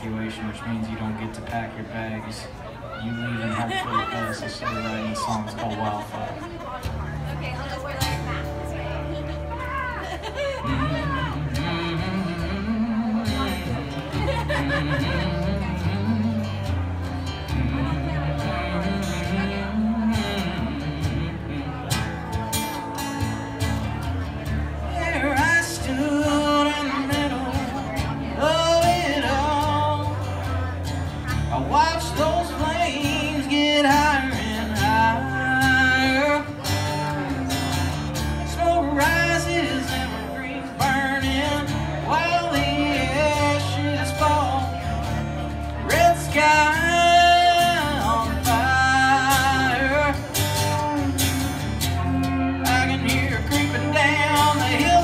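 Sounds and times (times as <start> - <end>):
acoustic guitar strumming: 0.0 - 55.0
pedal steel guitar sliding notes: 48.9 - 54.7.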